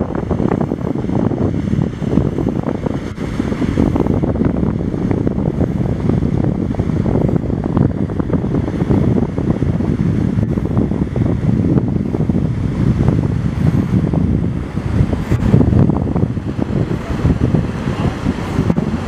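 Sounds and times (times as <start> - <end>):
boat engines: 0.0 - 19.0
wind buffeting microphone: 0.0 - 19.0.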